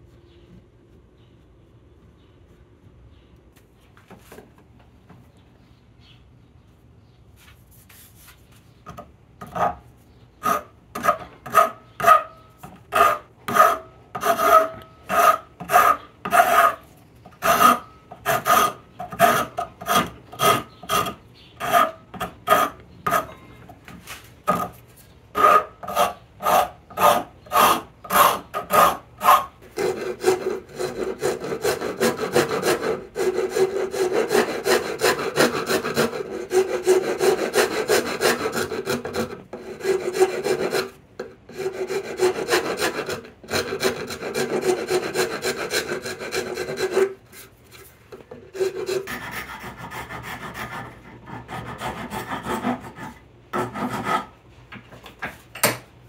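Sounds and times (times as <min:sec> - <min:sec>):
rasp and file on wood: 0:10.4 - 0:23.4, 0:24.5 - 0:47.5, 0:48.3 - 0:54.4.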